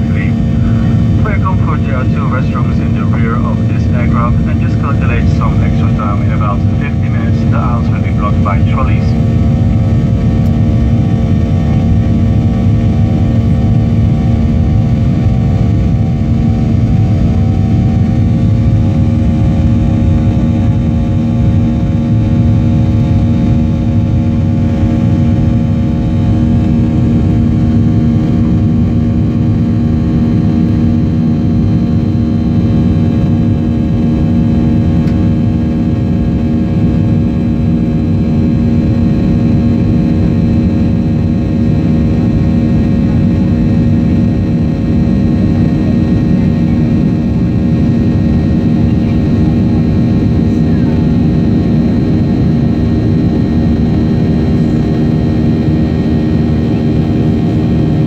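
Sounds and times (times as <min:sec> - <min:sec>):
jet engine noise in cabin: 0:00.0 - 0:58.0
steady whining tones: 0:00.0 - 0:58.0.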